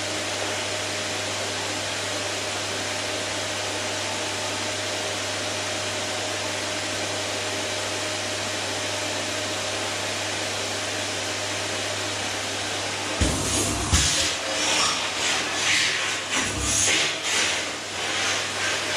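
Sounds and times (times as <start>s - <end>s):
vacuum cleaner motor running: 0.0s - 18.9s.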